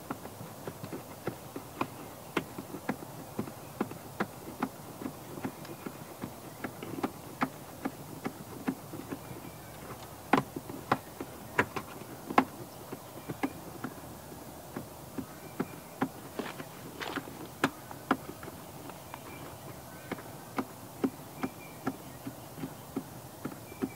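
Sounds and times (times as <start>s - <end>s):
hands clicking and knocking on parts: 0.0s - 14.0s
steady low hiss: 0.0s - 23.9s.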